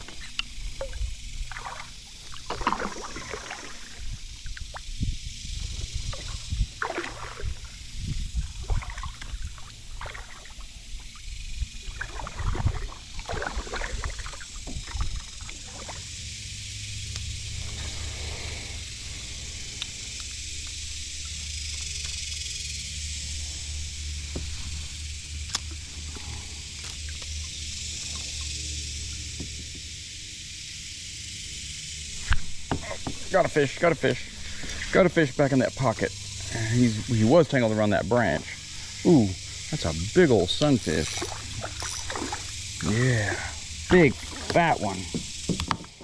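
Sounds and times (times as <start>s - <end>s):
paddle splashing in water: 0.8s - 4.1s, 6.1s - 7.7s, 8.5s - 10.7s, 11.8s - 16.0s, 41.0s - 42.6s, 44.1s - 45.3s
fishing reel whirring: 2.7s - 23.2s, 39.1s - 45.5s.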